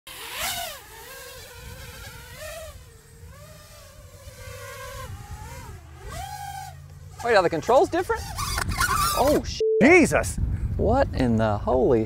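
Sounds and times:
quadcopter motors whining: 0.1s - 9.4s.

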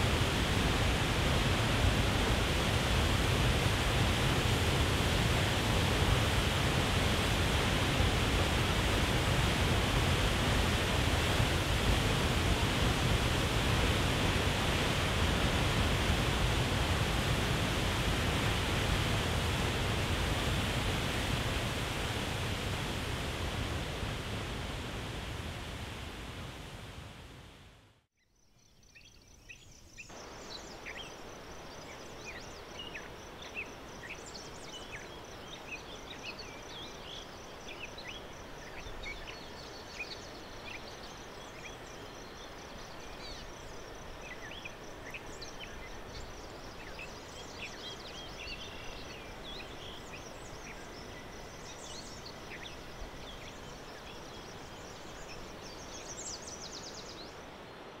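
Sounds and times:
soft even hiss: 0.0s - 27.7s.

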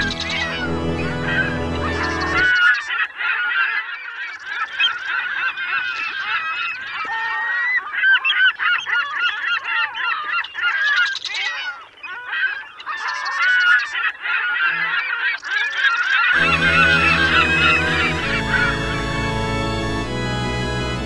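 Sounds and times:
squeaky voices cheering: 16.3s - 19.2s.

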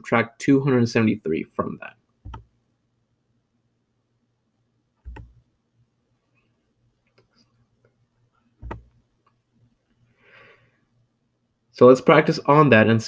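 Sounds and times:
computer mouse clicks: 2.3s - 2.5s, 5.0s - 5.4s, 8.6s - 9.0s.

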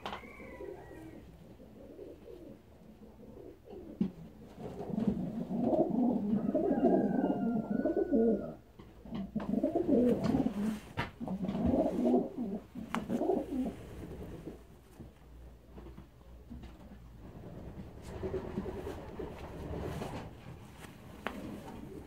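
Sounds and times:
pigeons cooing: 0.0s - 14.7s.

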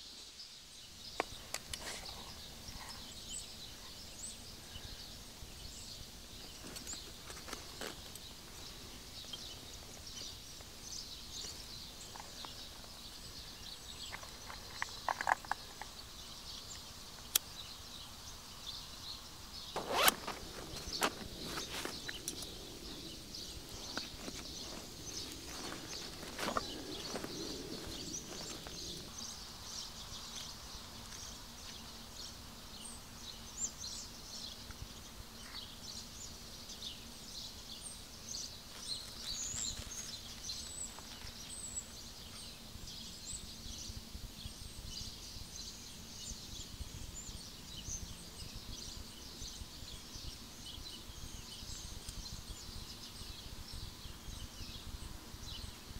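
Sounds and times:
birds chirping and singing: 1.0s - 55.9s
rustling of gear: 19.8s - 29.1s.

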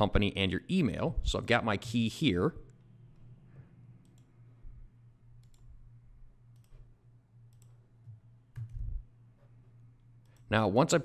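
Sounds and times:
faint low hum: 0.0s - 11.0s
computer mouse clicks: 4.0s - 4.3s, 5.4s - 5.7s, 6.5s - 8.8s.

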